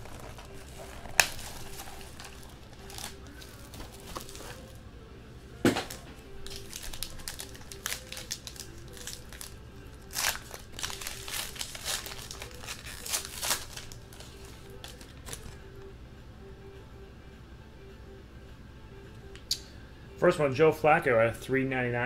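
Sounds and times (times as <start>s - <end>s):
foil wrapper crinkling and tearing: 0.0s - 4.7s, 5.9s - 15.6s
quiet music: 0.0s - 22.0s.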